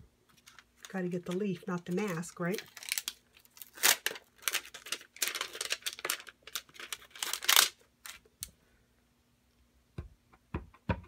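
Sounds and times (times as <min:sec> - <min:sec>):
plastic case crinkling: 0:00.3 - 0:08.2.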